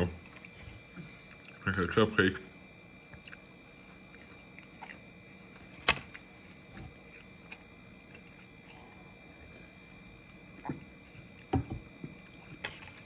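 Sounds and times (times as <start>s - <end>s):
person chewing: 3.1s - 13.0s.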